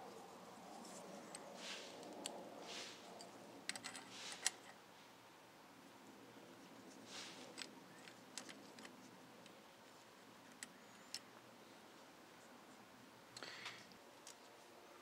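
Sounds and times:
metal parts clicking: 3.2s - 4.8s, 7.3s - 9.0s
gloved hands rustling: 6.6s - 11.2s.

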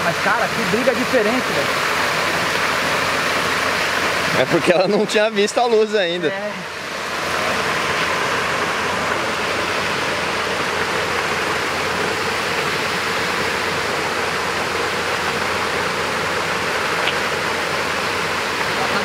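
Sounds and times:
rushing water: 0.0s - 19.0s.

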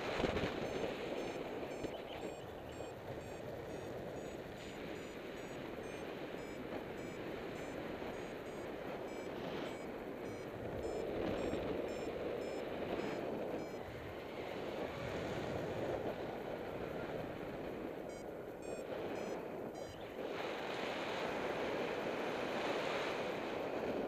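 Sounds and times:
variometer beeping: 0.0s - 14.6s, 16.4s - 20.2s.

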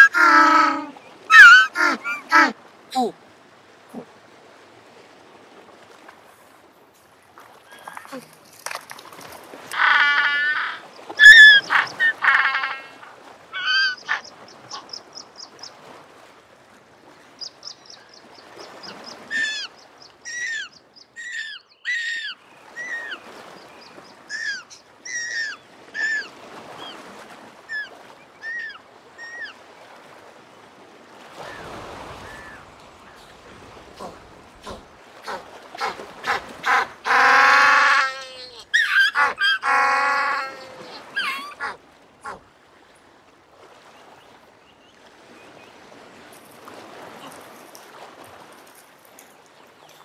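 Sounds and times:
penguins braying calls: 0.0s - 2.6s, 9.7s - 13.0s.

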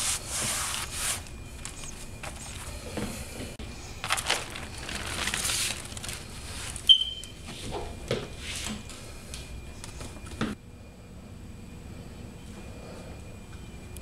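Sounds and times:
bubble wrap rustling: 0.0s - 2.8s, 3.8s - 7.4s
sharp high squeak: 6.9s - 7.3s.

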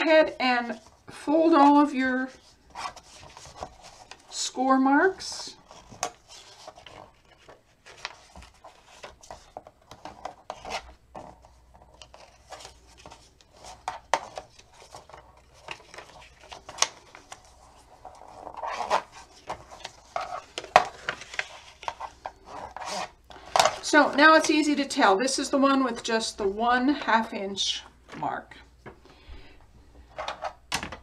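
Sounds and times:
cardstock folding and creasing: 2.3s - 4.4s, 5.6s - 24.2s.

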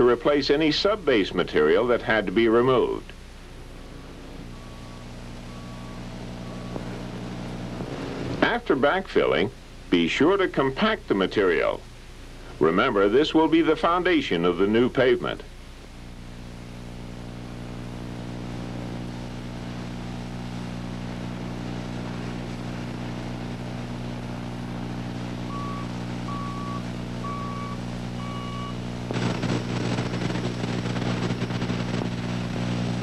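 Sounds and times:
diesel engine running: 0.0s - 8.6s, 15.9s - 33.0s
backup alarm beeps: 3.9s - 7.5s, 25.5s - 28.8s.

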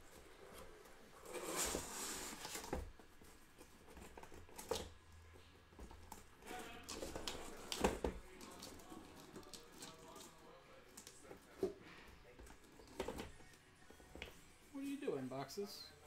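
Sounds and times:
cardboard box rustling and scraping: 0.2s - 5.0s.

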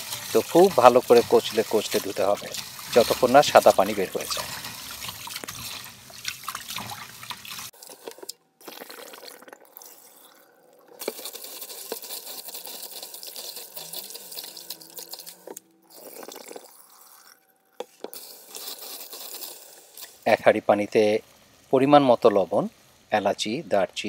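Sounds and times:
running tap: 0.0s - 17.3s, 18.0s - 22.9s
water splashing in a bowl: 0.0s - 17.4s.

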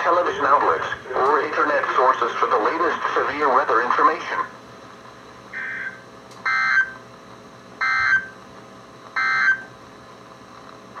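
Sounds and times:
data tone bursts from radio speaker: 5.6s - 7.0s.

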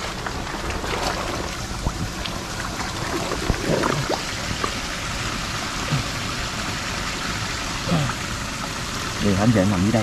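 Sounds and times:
shallow water sloshing: 0.0s - 5.1s
small water splashes: 0.0s - 9.2s.

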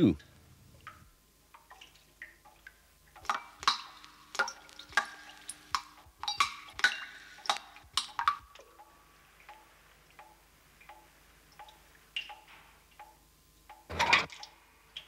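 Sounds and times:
water dripping into metal buckets: 0.0s - 15.0s.

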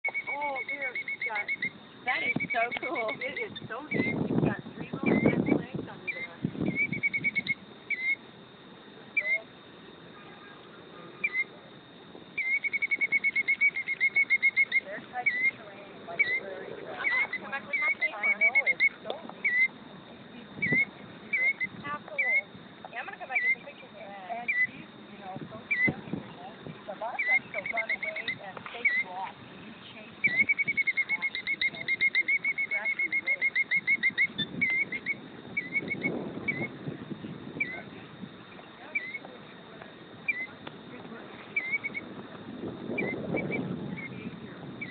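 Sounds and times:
bird alarm calls and trill: 0.0s - 8.4s, 9.1s - 11.6s, 12.2s - 39.3s, 40.1s - 44.9s.

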